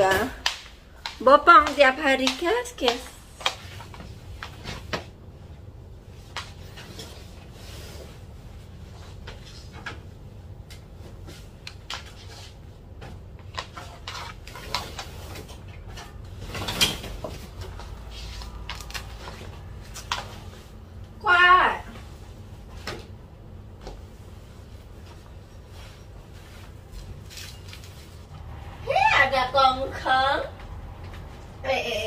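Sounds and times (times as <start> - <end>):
low hum: 26.2 - 32.0.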